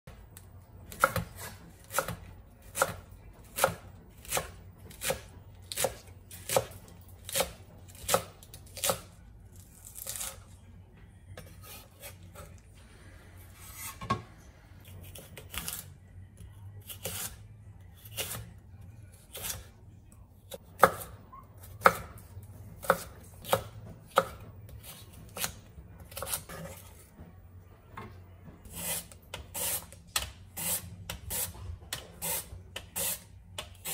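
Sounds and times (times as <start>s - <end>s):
knife chopping on wooden board: 0.9s - 9.1s, 21.8s - 22.2s, 22.8s - 25.5s.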